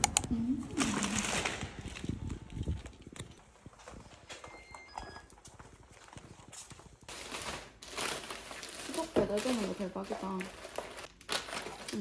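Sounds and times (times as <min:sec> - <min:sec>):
footsteps on tiled floor: 0:01.1 - 0:07.1.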